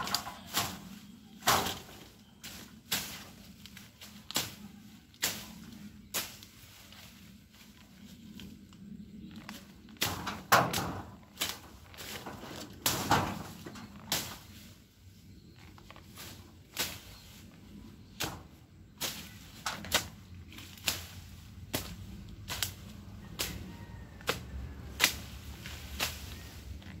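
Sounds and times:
blade chopping through grass: 0:10.0 - 0:14.6, 0:18.0 - 0:23.6, 0:24.2 - 0:26.6.

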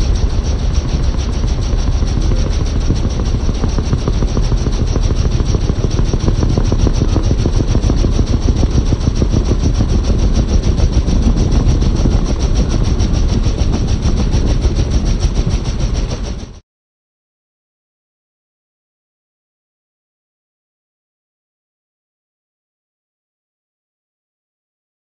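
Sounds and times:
aircraft engine rumble: 0:00.0 - 0:16.6
wind rush: 0:00.0 - 0:16.6.

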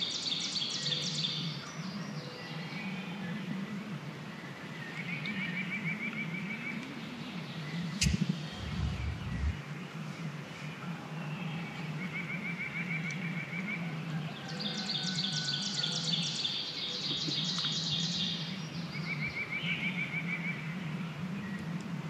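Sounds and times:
songbird trill: 0:00.0 - 0:03.7, 0:04.3 - 0:09.6, 0:11.2 - 0:21.9
steady low hum: 0:07.8 - 0:09.7
high-pitched birdsong: 0:07.9 - 0:09.6.

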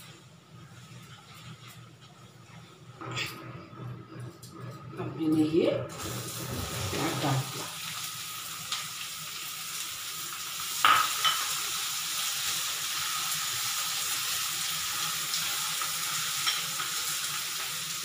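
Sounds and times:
onion sizzling in hot oil: 0:05.9 - 0:18.0.

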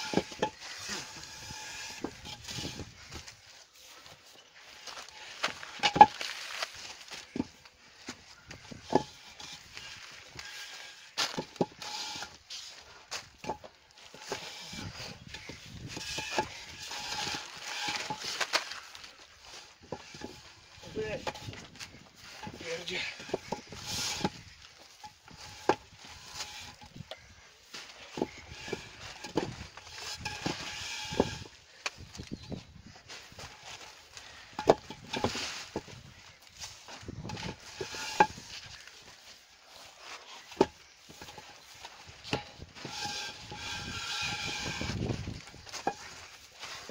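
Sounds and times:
concrete block scraping: 0:00.0 - 0:46.9
concrete blocks knocking: 0:05.8 - 0:06.2, 0:08.5 - 0:12.3, 0:13.4 - 0:18.4, 0:19.8 - 0:21.7, 0:22.3 - 0:24.5, 0:25.2 - 0:27.1, 0:28.2 - 0:31.5, 0:34.5 - 0:35.9, 0:37.2 - 0:38.5.

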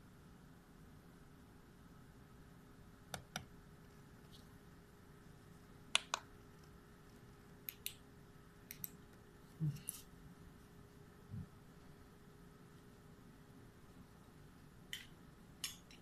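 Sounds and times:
faint steady hum: 0:00.0 - 0:16.0
paired sharp clicks: 0:07.6 - 0:08.0, 0:08.7 - 0:09.0.

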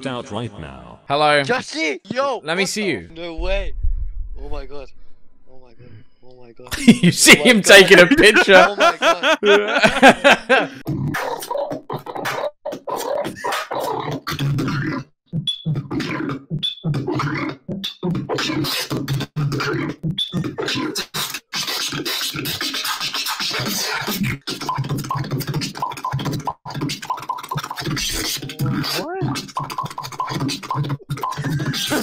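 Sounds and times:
person beatboxing scratch sounds: 0:10.8 - 0:32.0.

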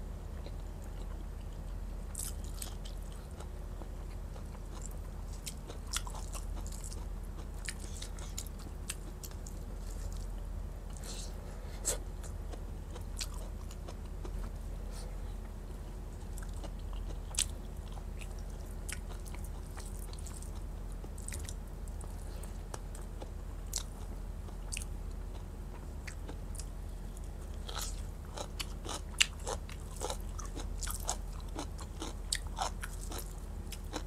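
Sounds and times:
steady low hum: 0:00.0 - 0:34.0
person chewing: 0:00.4 - 0:34.0.

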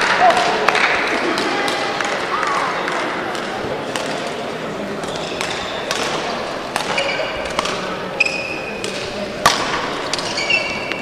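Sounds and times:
murmur of sports hall: 0:00.0 - 0:11.0
shoes squeaking on court floor: 0:04.9 - 0:09.2, 0:09.8 - 0:11.0
racket striking shuttlecock: 0:05.0 - 0:11.0.

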